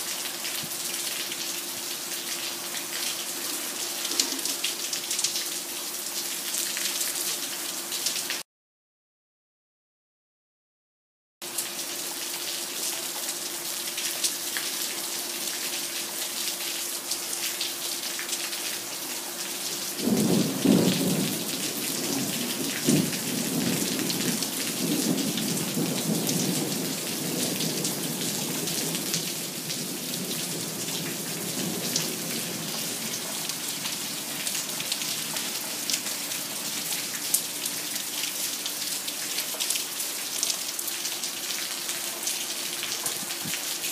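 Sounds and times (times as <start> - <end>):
steady rain falling: 0.0 - 8.4, 11.4 - 43.9
thunder rumbling: 20.0 - 33.4.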